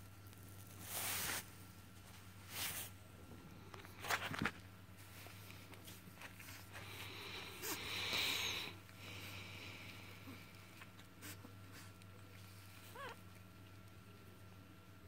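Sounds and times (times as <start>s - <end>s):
faint steady hum: 0.0s - 15.0s
puppy snuffling: 3.6s - 13.8s
wheezy hissing breath: 6.4s - 12.0s.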